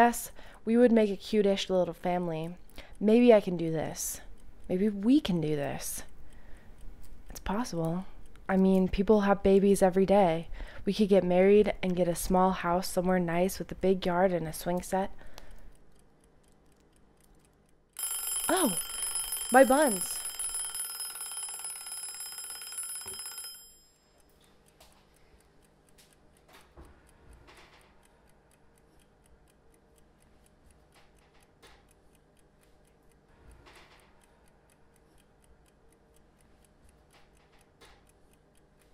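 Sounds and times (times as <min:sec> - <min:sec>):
kitchen timer bell ringing: 0:18.0 - 0:24.4.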